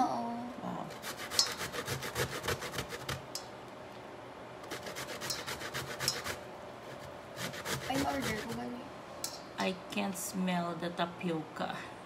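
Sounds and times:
grating root on metal grater: 0:00.9 - 0:03.4, 0:04.6 - 0:08.8.

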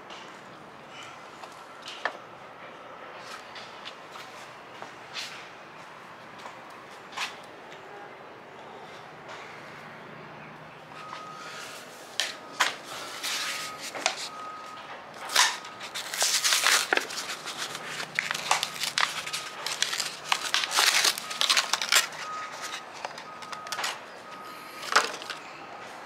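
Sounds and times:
crinkling and rustling: 0:11.0 - 0:25.4.

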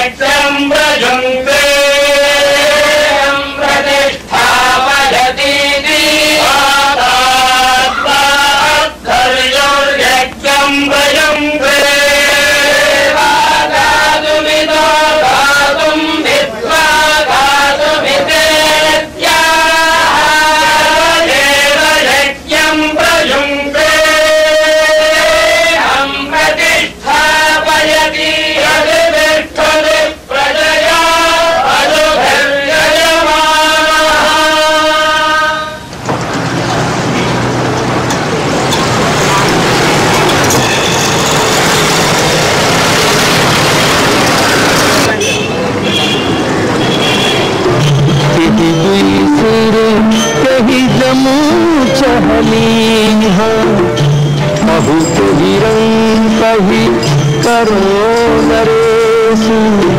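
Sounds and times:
group of voices chanting: 0:00.0 - 0:35.9.

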